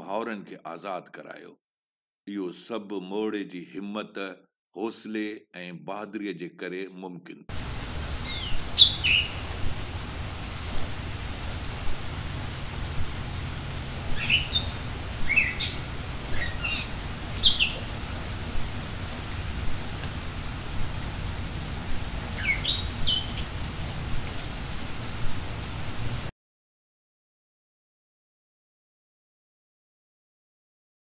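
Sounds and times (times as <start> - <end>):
steady background hiss: 7.5 - 26.3
birds chirping: 7.6 - 24.8.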